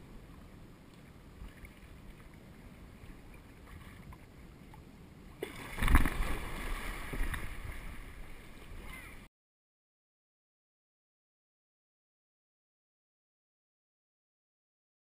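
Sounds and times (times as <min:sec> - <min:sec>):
water lapping under kayak: 0:00.0 - 0:09.3
heavy splash and churning water: 0:05.4 - 0:09.3.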